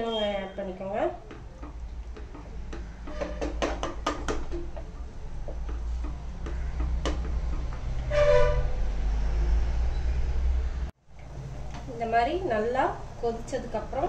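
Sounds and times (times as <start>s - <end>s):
spatula knocking on pressure cooker: 2.2s - 4.7s.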